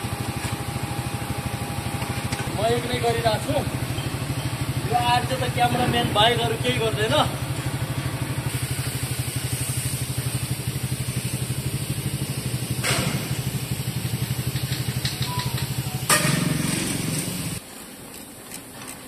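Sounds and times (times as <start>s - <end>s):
diesel truck engine idling: 0.0s - 17.6s
sharp knock: 16.1s - 16.8s.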